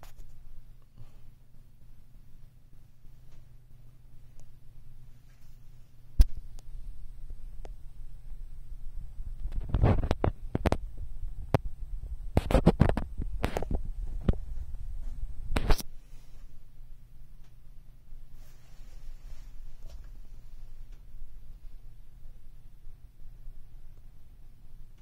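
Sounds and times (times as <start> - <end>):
low steady hum: 0.0 - 25.0
microphone handling thumps and rubbing: 8.3 - 16.5.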